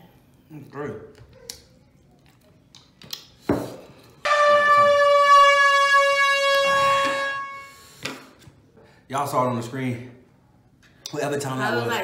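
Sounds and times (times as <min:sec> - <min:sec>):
horn blast: 0:04.2 - 0:08.0.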